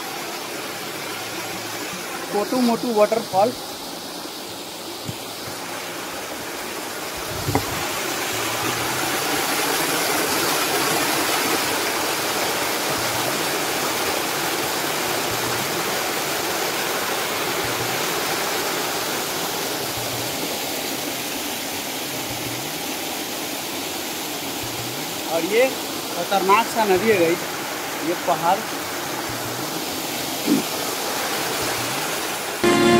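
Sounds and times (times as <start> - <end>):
waterfall rushing over rocks: 0.0 - 32.9
brief thump: 7.4 - 7.8.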